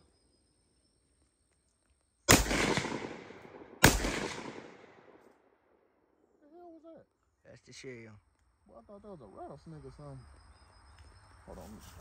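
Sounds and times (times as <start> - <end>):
gunshot echo: 2.3 - 5.2
rifle shots: 2.3 - 5.2.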